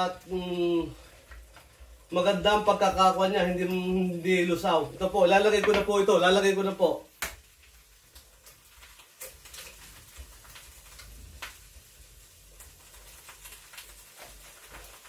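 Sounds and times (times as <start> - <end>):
faint steady sizzle: 0.0 - 15.0
egg cracking on pot rim: 7.1 - 11.8, 12.5 - 15.0.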